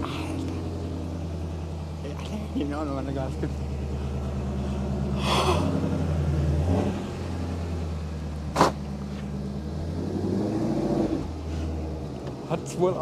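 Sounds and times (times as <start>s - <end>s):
car engine running: 0.0s - 13.0s
sharp knock: 8.5s - 8.8s.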